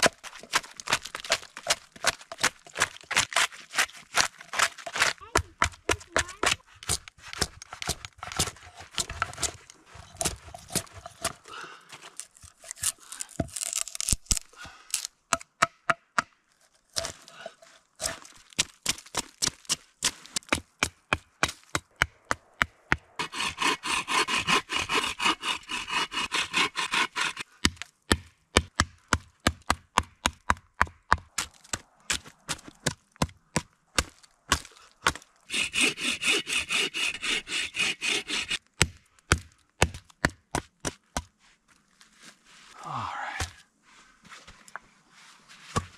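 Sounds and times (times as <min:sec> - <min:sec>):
hatchet chopping wood: 0:00.0 - 0:11.5, 0:12.8 - 0:16.4, 0:18.0 - 0:41.3
hand saw sawing: 0:23.2 - 0:27.5, 0:35.5 - 0:38.6.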